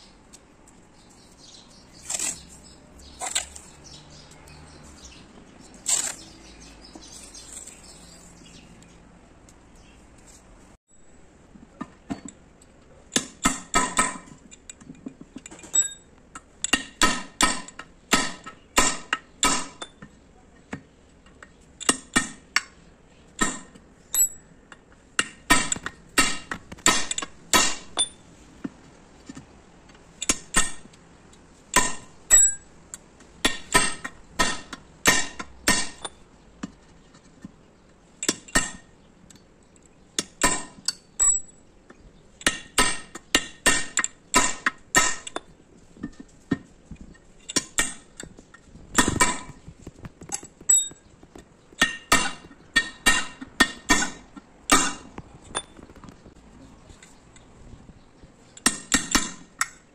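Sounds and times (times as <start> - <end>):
hammer striking steel punch: 16.7 - 19.9, 23.4 - 23.8, 25.2 - 28.2, 31.7 - 32.6, 33.4 - 36.2, 38.3 - 38.9, 42.4 - 45.4, 51.8 - 55.7, 58.6 - 59.5.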